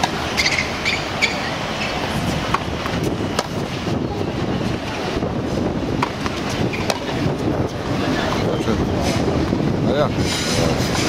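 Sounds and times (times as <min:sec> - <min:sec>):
wind buffeting microphone: 0:00.0 - 0:11.0
tennis ball being struck: 0:02.5 - 0:03.6, 0:06.0 - 0:07.2.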